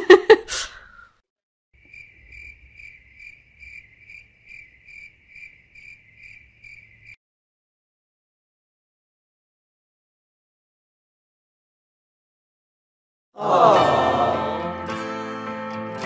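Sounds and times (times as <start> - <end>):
high insect-like chirping: 1.8 - 7.2.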